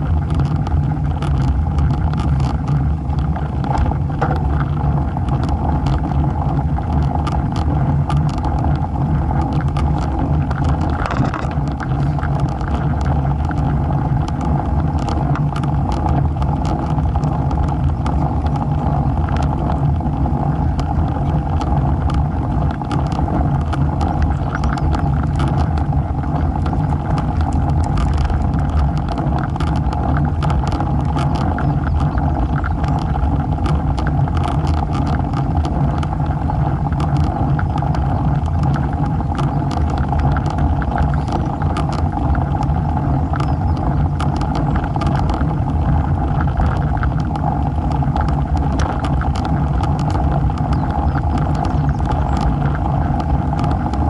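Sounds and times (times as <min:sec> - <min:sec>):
bike tyres rolling on asphalt: 0:00.0 - 0:54.0
small clicks and rattles: 0:00.0 - 0:54.0
wind rumble on microphone: 0:00.0 - 0:54.0.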